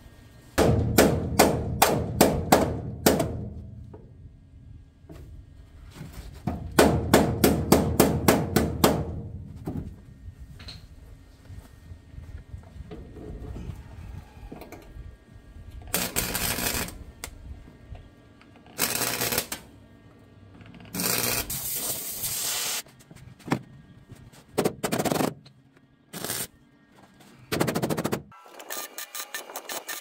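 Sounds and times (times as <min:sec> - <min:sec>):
welding arc crackling: 0:15.9 - 0:17.4, 0:18.8 - 0:19.7, 0:20.9 - 0:22.8.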